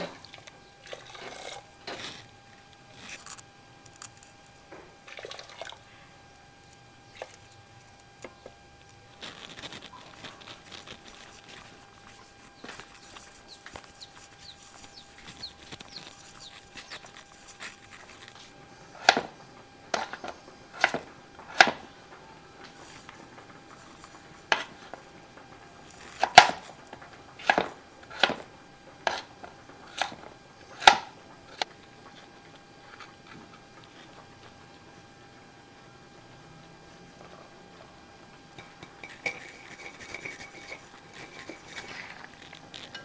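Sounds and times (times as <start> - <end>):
knife cutting potato on board: 19.0 - 21.8, 27.4 - 30.2.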